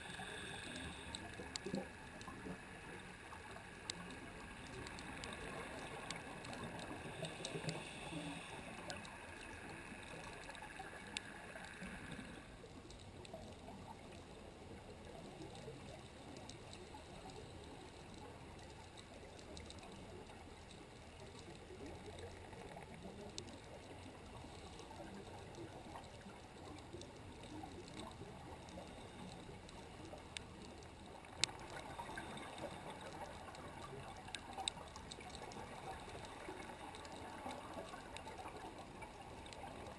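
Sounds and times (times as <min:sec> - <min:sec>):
underwater rushing hiss: 0:00.0 - 0:12.5
thin steady whine: 0:00.0 - 0:39.9.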